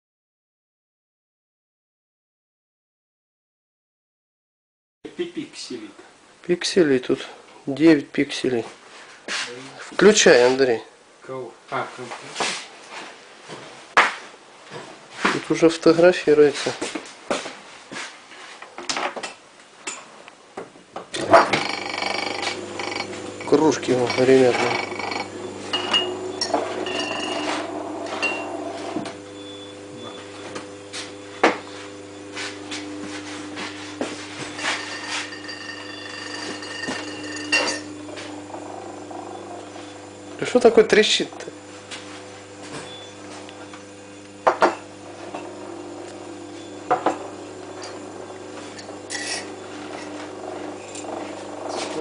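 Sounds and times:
compressor humming: 21.1s - 52.0s.

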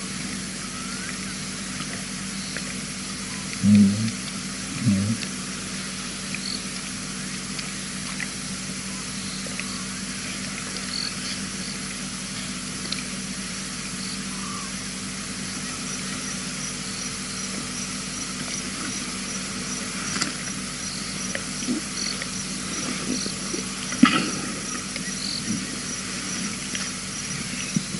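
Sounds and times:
microphone hiss: 0.0s - 7.8s
low electrical hum: 0.0s - 27.9s
faint insect chirping: 0.7s - 6.7s, 8.7s - 12.5s, 13.4s - 27.9s.

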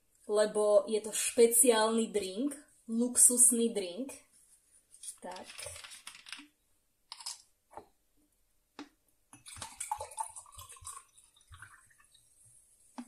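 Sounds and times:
sparkling water pouring and fizzing: 9.4s - 13.0s.

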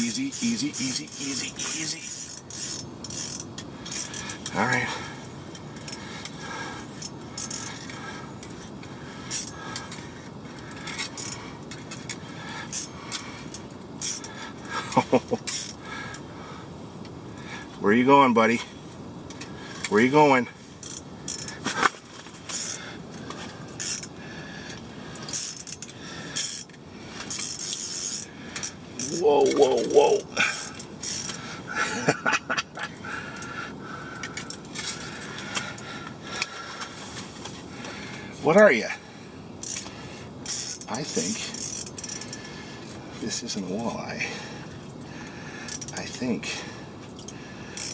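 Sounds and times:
fishing reel scrapes: 0.0s - 4.6s, 7.0s - 8.6s, 10.7s - 14.3s, 20.8s - 21.7s, 22.4s - 22.8s, 23.7s - 24.1s, 25.2s - 31.4s, 39.6s - 42.5s
steady background hiss: 0.0s - 47.9s
light metallic clinks: 44.9s - 47.9s.

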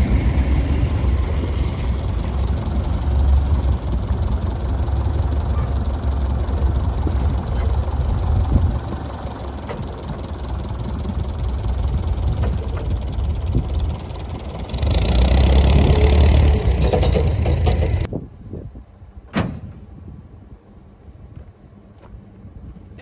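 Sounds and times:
rushing noise: 0.0s - 18.1s
vehicle engine idling: 0.0s - 18.1s.

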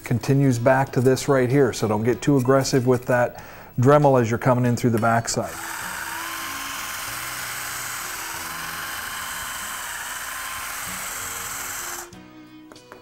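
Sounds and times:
background music: 0.0s - 13.0s
electric drill running: 5.4s - 12.2s.

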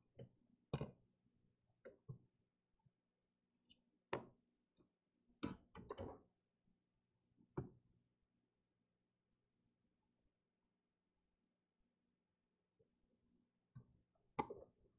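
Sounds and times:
faint clicks and taps of tools: 5.4s - 6.2s.

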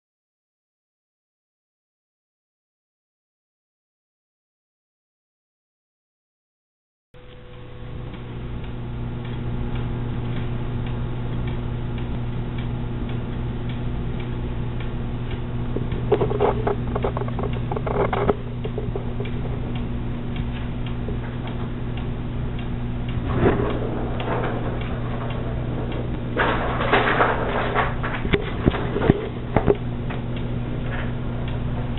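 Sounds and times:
electrical hum: 7.2s - 31.9s
faint ticking: 7.2s - 31.9s.

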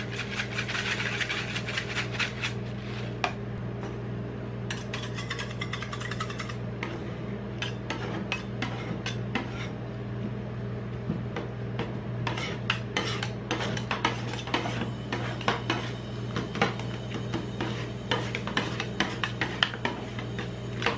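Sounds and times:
steady low hum: 0.0s - 20.9s
metal spatulas chopping on metal plate: 4.7s - 6.6s.

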